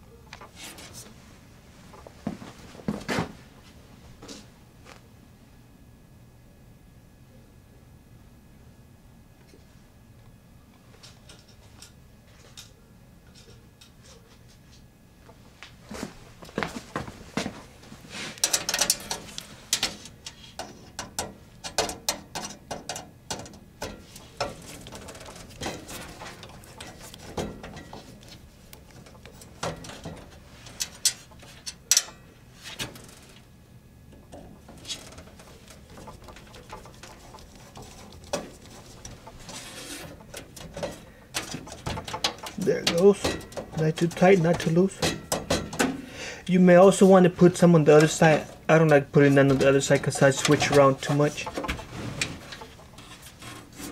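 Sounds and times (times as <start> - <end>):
metal scraping: 34.3 - 45.9, 47.9 - 53.9.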